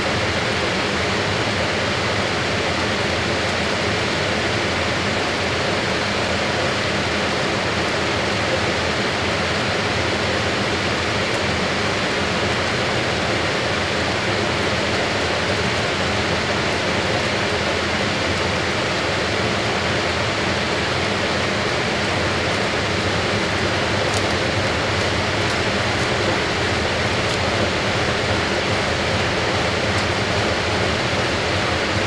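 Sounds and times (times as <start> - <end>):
washing machine running: 0.0 - 32.0.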